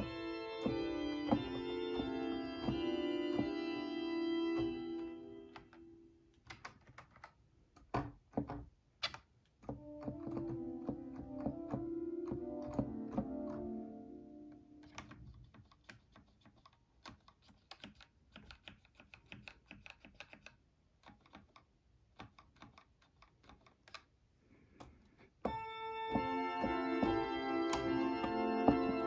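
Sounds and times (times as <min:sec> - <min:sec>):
pipe organ chord: 0:00.0 - 0:05.9, 0:10.1 - 0:14.8, 0:25.5 - 0:29.0.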